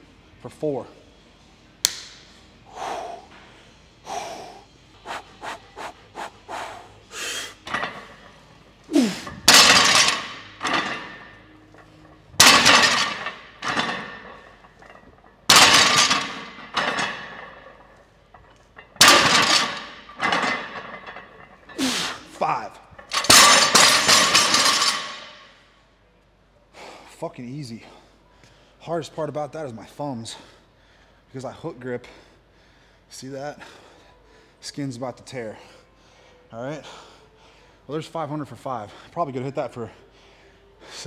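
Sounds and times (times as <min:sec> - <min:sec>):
person grunting: 0:08.9 - 0:09.3
barbell plates banging on floor: 0:09.3 - 0:11.2, 0:12.4 - 0:17.6, 0:19.0 - 0:21.2.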